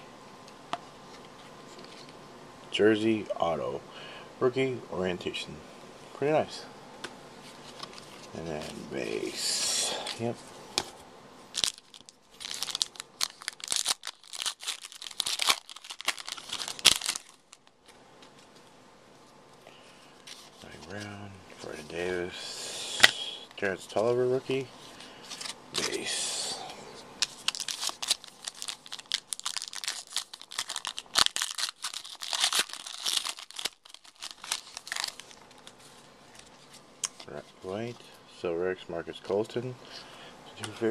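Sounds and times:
wrapper tearing and crinkling: 11.5s - 17.8s, 25.3s - 26.6s, 27.2s - 37.3s.

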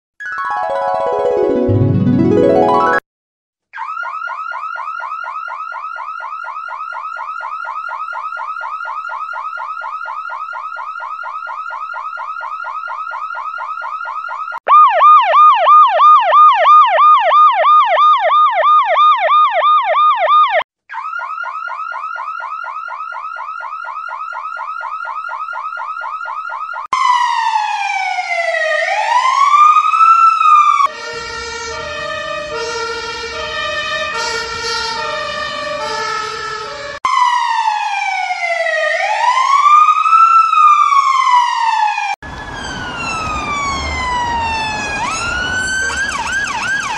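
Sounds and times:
electronic emergency sirens: 3.8s - 46.9s
stepped siren tones: 3.8s - 46.9s.

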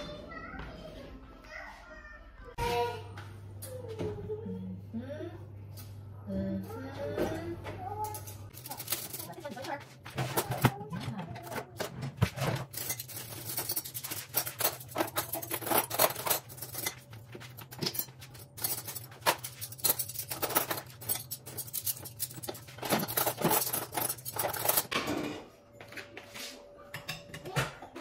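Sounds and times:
metal cutlery clinking: 8.0s - 25.4s.

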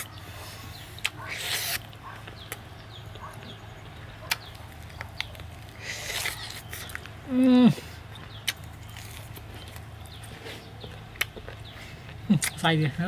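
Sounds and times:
wet chewing and lip-smacking: 0.9s - 3.5s, 4.2s - 7.2s, 8.1s - 12.6s.

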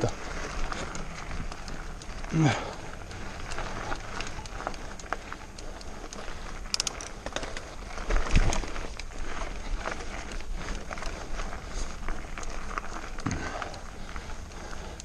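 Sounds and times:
sharp clicks and rattles: 0.0s - 11.2s
stones crunching under bike tyres: 0.0s - 15.0s.

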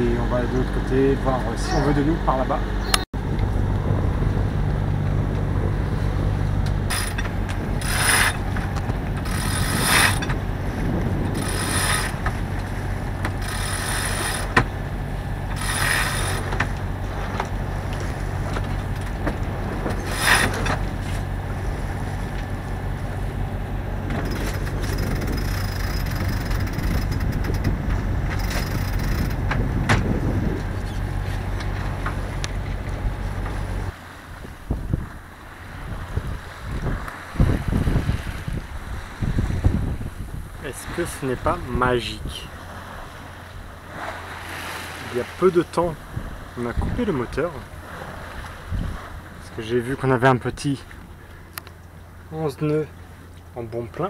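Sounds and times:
diesel engine humming: 0.0s - 54.0s
winch ratchet clicking: 6.9s - 8.4s, 9.2s - 10.4s, 13.2s - 14.6s, 15.5s - 16.7s, 24.1s - 29.5s.

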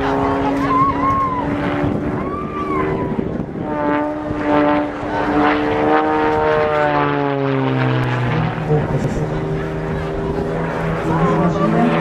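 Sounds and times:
propeller plane engine droning: 0.0s - 12.0s.

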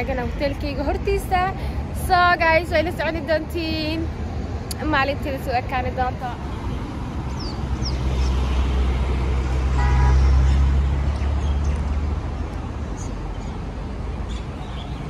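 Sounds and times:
heavy vehicle engine passing: 6.2s - 14.2s.

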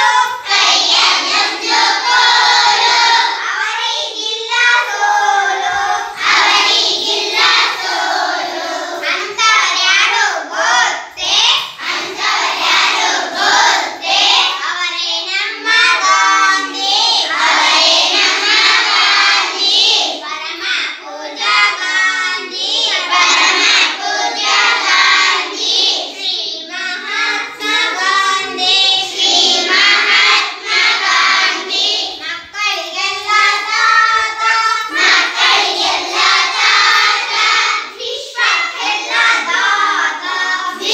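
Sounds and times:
children singing in unison: 0.0s - 40.9s.

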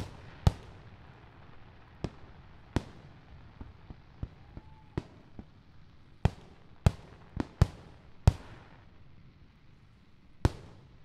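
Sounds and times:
firework booms echoing: 0.0s - 1.1s.

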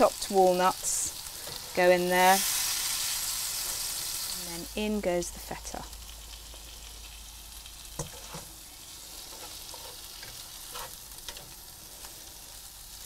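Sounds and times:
food sizzling in a frying pan: 0.0s - 13.0s
wooden spatula scraping a pan: 8.0s - 11.5s.

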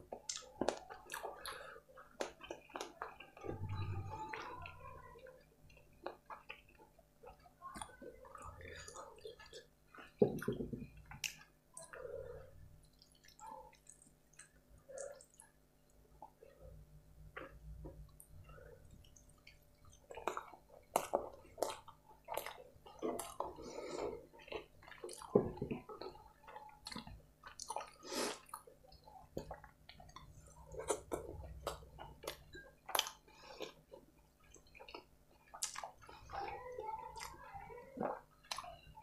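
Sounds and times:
wet chewing: 0.0s - 39.0s
lip smacks and mouth clicks: 11.0s - 12.0s, 12.8s - 15.6s.

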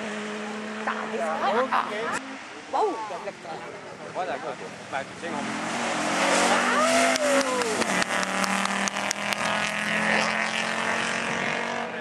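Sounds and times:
rally car passing at speed: 0.0s - 2.6s, 3.4s - 12.0s
exhaust pops and cracks: 7.2s - 9.6s.

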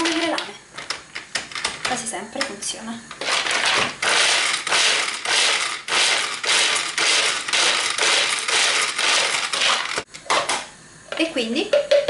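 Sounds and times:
nuts rattling in plastic bowl: 3.2s - 10.0s.

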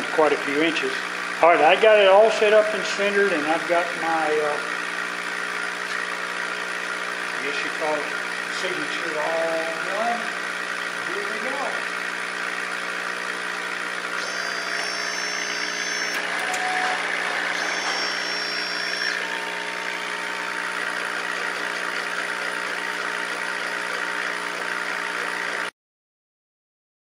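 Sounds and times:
high-pitched stepper motor whines: 0.2s - 25.7s
fan hum: 13.4s - 20.7s.

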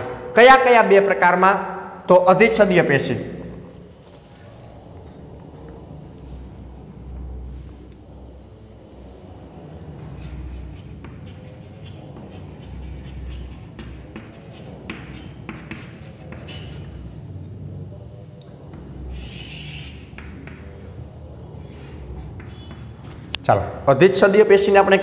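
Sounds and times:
chalk scratching on chalkboard: 9.8s - 17.3s, 18.7s - 23.3s.

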